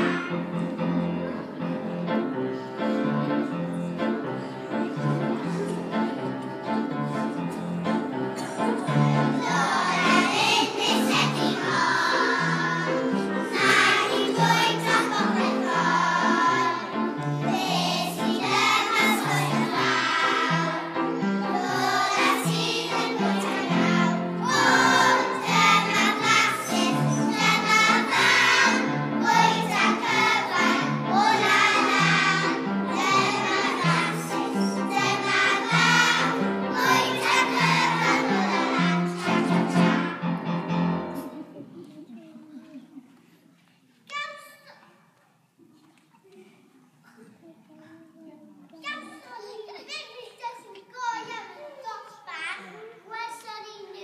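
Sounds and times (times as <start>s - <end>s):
children singing: 0.0s - 1.6s, 8.4s - 40.2s
instrumental accompaniment: 0.0s - 41.5s.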